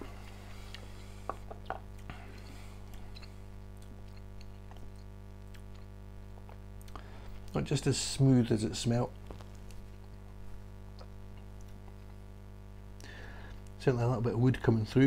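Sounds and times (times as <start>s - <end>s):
low electrical hum: 0.0s - 15.0s.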